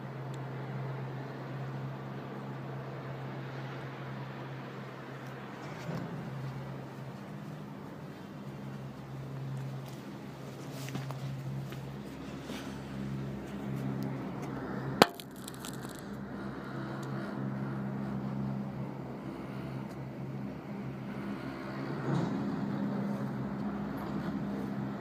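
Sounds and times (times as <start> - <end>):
low mechanical hum: 0.0 - 25.0.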